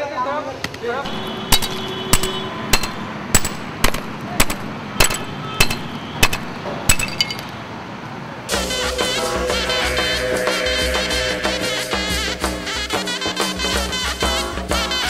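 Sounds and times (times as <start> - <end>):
hammer striking bricks and stone: 1.1 - 7.5
music: 8.5 - 15.0.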